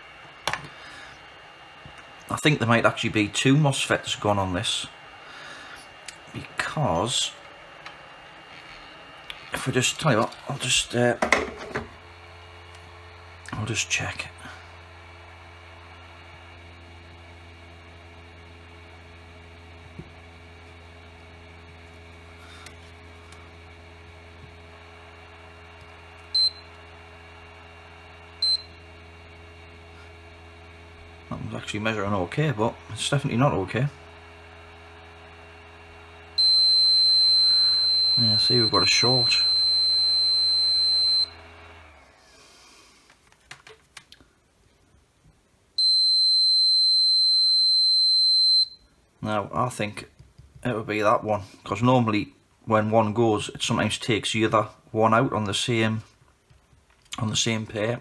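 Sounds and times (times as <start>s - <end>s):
multimeter beeping: 26.2s - 26.8s, 28.4s - 28.8s, 36.4s - 41.4s, 45.8s - 48.9s.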